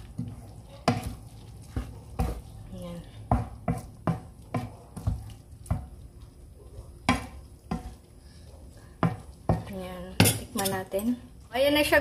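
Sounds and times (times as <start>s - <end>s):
wooden spatula scraping frying pan: 0.0s - 5.9s.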